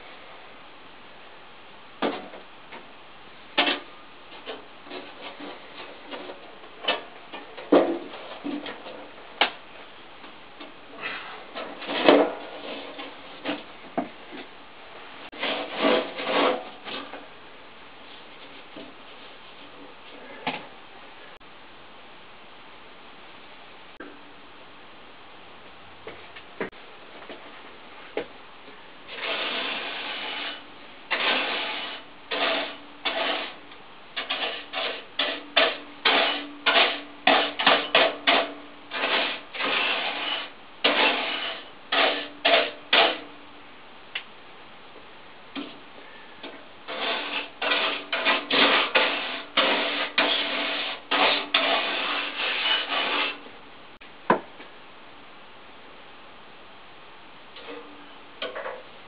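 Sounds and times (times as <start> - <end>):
scrubbing tool rasping: 29.1 - 33.6, 34.2 - 43.2, 46.9 - 53.4.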